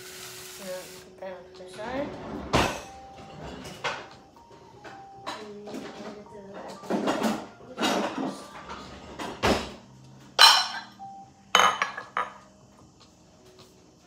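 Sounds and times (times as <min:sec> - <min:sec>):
glass bowls clattering and clinking: 0:10.4 - 0:11.0, 0:11.6 - 0:12.4.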